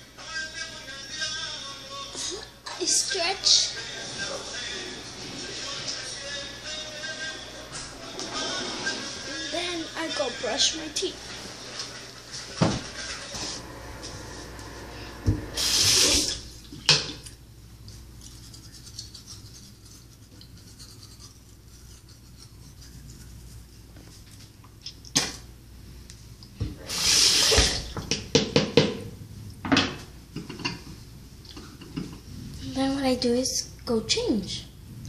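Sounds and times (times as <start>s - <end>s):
short loud hissing bursts: 14.3s - 16.4s, 26.8s - 27.9s
toothbrush scrubbing teeth: 17.8s - 24.4s.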